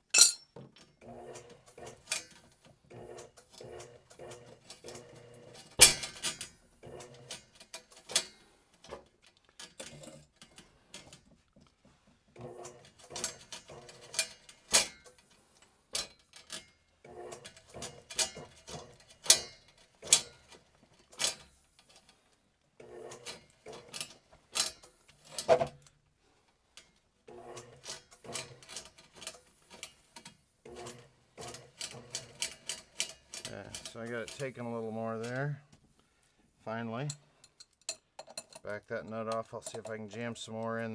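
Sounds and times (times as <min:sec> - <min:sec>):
cable clicking and rattling: 0:00.6 - 0:35.7, 0:37.0 - 0:40.9
drain auger motor spinning: 0:01.0 - 0:02.1, 0:02.8 - 0:05.8, 0:12.4 - 0:14.3, 0:17.0 - 0:19.1, 0:27.3 - 0:28.7.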